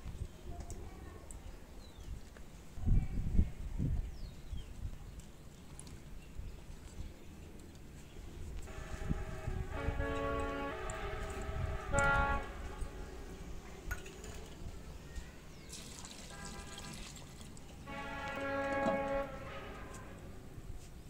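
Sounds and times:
water poured into a pot: 15.6s - 17.9s.

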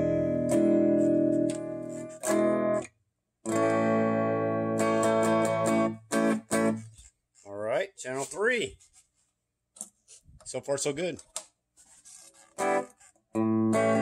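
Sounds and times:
electric guitar strumming chords: 0.0s - 2.9s, 3.5s - 6.8s, 12.6s - 14.0s.

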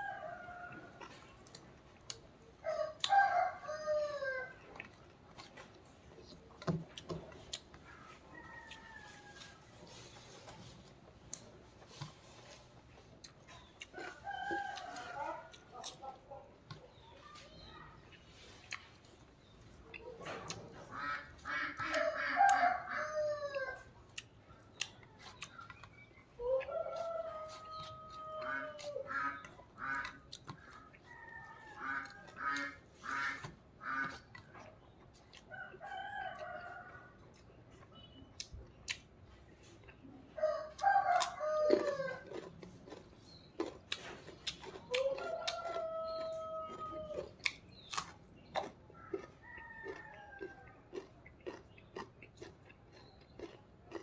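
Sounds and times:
rooster crowing: 0.0s - 0.9s, 2.6s - 4.5s, 21.9s - 23.8s, 40.4s - 42.4s, 44.9s - 47.3s, 49.1s - 50.7s
carrot crunching: 0.8s - 36.4s, 37.2s - 54.0s
eating clicks and smacks: 24.1s - 26.2s, 27.8s - 31.1s, 33.4s - 40.1s, 40.7s - 54.0s.

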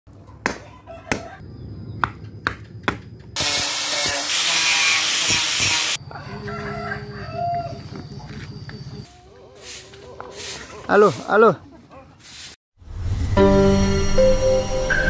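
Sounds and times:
angle grinder cutting bamboo: 3.4s - 6.0s
chicken calling: 6.0s - 12.3s.

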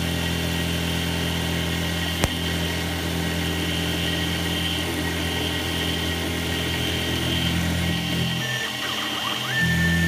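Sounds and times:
motor hum: 0.0s - 10.0s
high whine: 2.0s - 10.0s.

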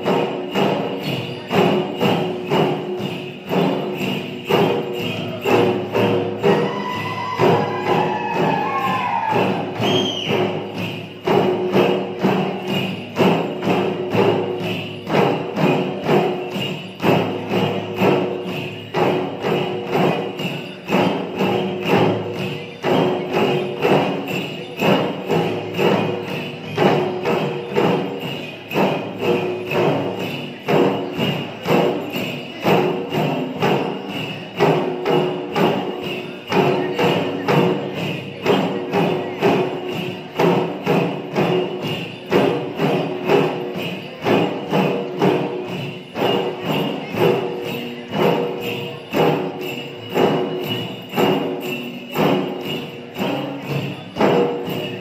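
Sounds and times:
drums beaten in steady rhythm: 0.0s - 55.0s
metallic jingling: 0.0s - 55.0s
gliding whistle-like tone: 9.8s - 10.5s.

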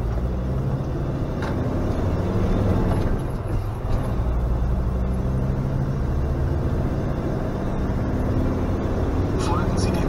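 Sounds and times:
motorhome engine running: 0.0s - 10.0s
tyre and road noise: 0.0s - 10.0s.

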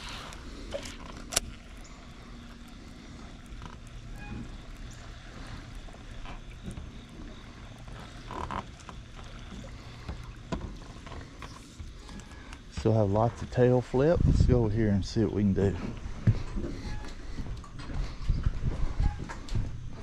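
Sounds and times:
fishing reel casting click: 0.0s - 1.9s
reel and line sounds: 0.0s - 14.1s
steady low hum: 0.0s - 20.0s.

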